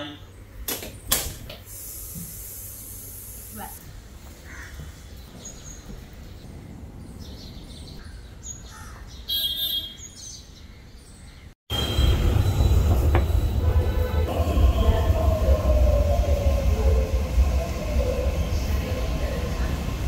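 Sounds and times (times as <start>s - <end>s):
metro train rumble: 11.7s - 20.0s.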